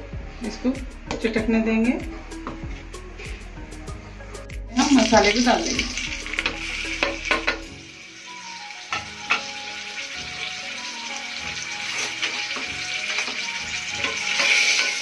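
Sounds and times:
spices sizzling in hot oil: 0:04.7 - 0:15.0.

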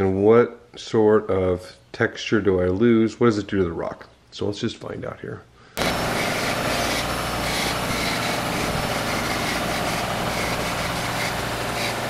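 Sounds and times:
bench grinder motor hum: 0:05.8 - 0:12.0
wire brush scrubbing stone: 0:05.8 - 0:12.0.

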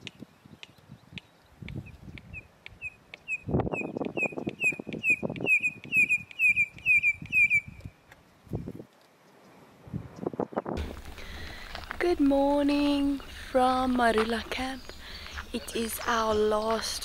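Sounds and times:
bird piping whistled call: 0:00.5 - 0:08.0.

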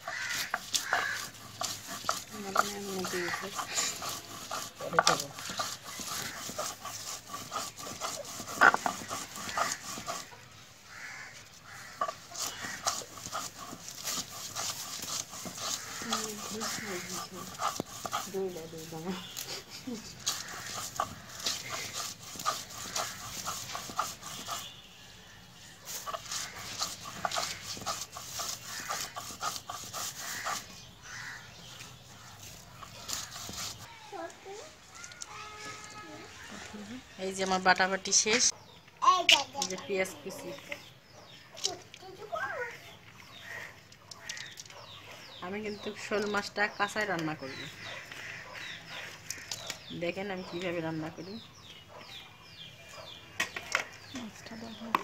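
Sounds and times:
stone pestle scraping on stone slab: 0:00.0 - 0:10.4, 0:12.0 - 0:24.8, 0:25.6 - 0:31.5, 0:32.4 - 0:33.9.

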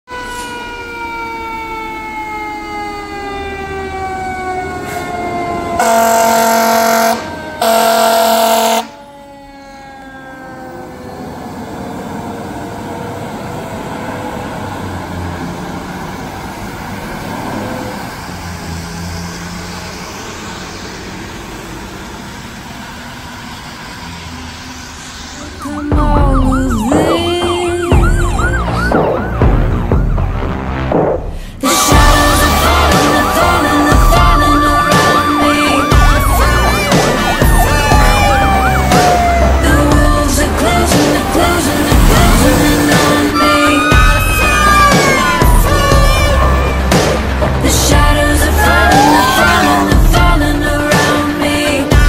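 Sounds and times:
fire engine siren wailing: 0:00.0 - 0:30.9, 0:31.6 - 0:52.0
truck engine: 0:00.1 - 0:52.0
air horn blasts: 0:05.8 - 0:09.1, 0:31.6 - 0:36.2.

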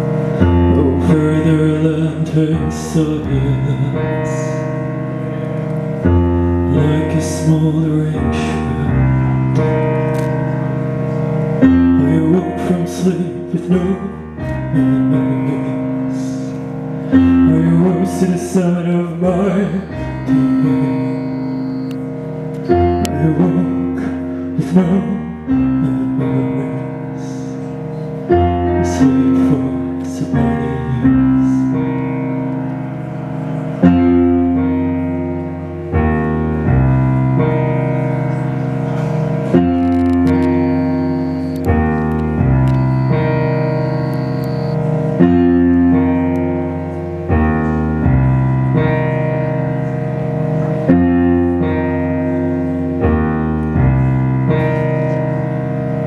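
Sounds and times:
keyboard sustained chords: 0:00.0 - 0:56.0
low bass notes: 0:28.3 - 0:56.0.

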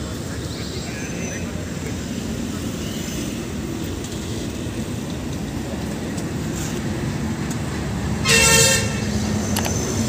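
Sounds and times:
low rumble of vehicles: 0:00.0 - 0:10.0
car horn beep: 0:08.2 - 0:09.1.

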